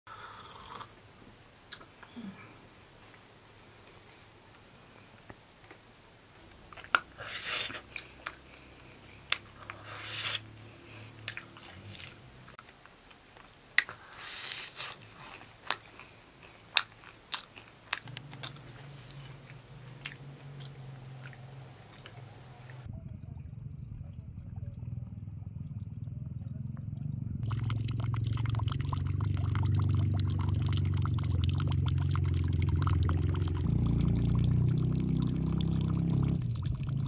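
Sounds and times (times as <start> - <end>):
people eating crunchy pastries: 6.6 - 22.9
low steady hum: 14.9 - 37.0.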